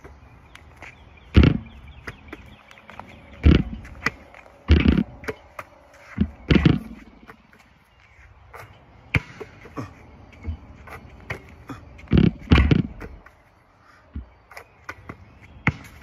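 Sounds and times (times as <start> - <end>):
basketball bouncing on asphalt: 0.0 - 7.8, 8.6 - 13.4, 14.1 - 16.0.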